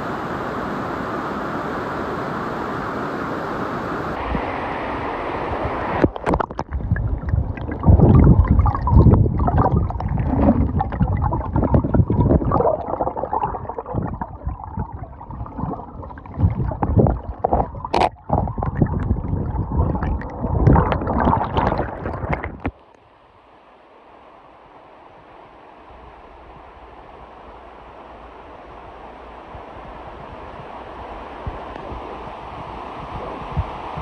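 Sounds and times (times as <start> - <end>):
faint steady hiss: 0.0 - 18.2, 22.6 - 34.0
muffled water gurgling and sloshing: 4.1 - 23.0
underwater knocks and bubbles: 6.0 - 22.8.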